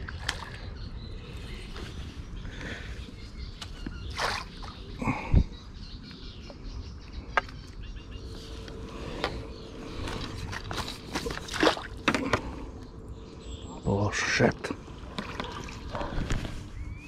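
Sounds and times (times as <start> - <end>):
water splashing and sloshing: 0.0 - 0.8, 3.6 - 5.2, 10.0 - 12.6, 14.6 - 16.8.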